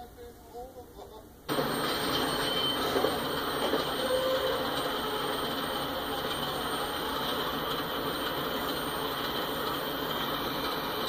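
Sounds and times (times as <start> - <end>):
freight train wheels rumbling: 1.5 - 11.0.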